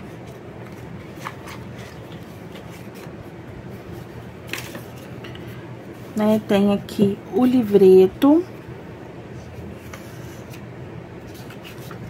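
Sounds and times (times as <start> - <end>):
cardboard and paper rustling: 0.3 - 3.2, 4.0 - 5.3, 11.2 - 12.0.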